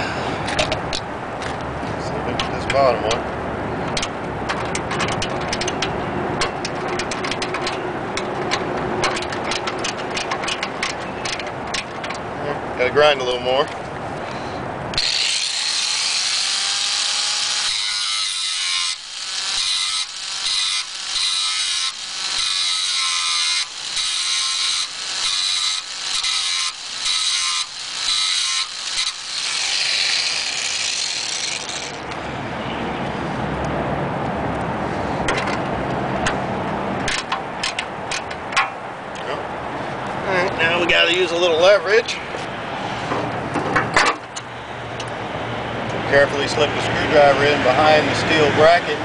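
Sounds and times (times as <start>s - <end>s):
grinder whining on metal: 15.0s - 32.2s.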